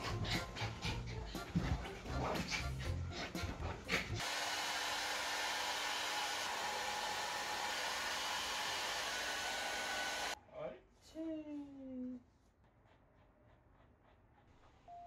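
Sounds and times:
hair dryer blowing: 0:04.2 - 0:10.4.

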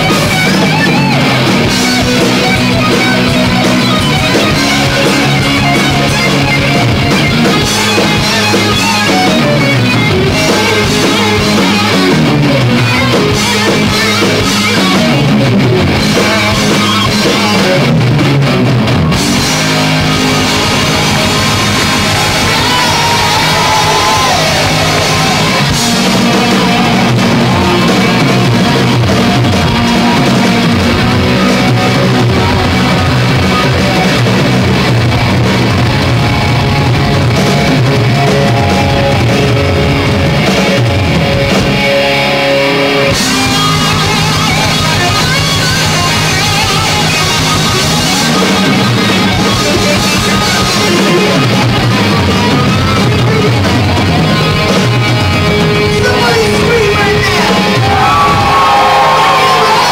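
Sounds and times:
drum kit: 0:00.0 - 0:59.9
electric guitars: 0:00.0 - 0:59.9.

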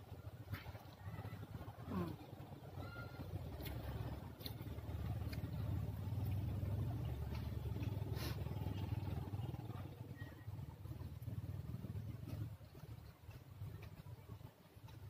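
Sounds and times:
food being chewed: 0:03.5 - 0:08.9, 0:11.9 - 0:15.0.

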